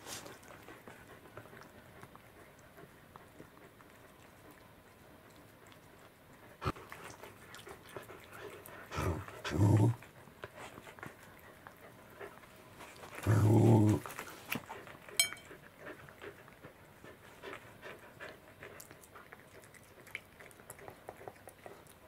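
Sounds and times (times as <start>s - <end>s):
cat chewing food: 0.0s - 22.0s
pet growling low: 8.4s - 10.1s, 13.1s - 14.4s
metallic clink: 15.2s - 15.5s.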